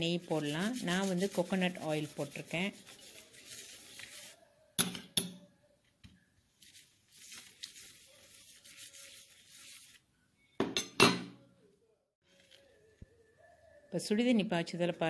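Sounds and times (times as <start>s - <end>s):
spoon scraping flatbread: 0.0s - 4.4s, 6.6s - 10.0s.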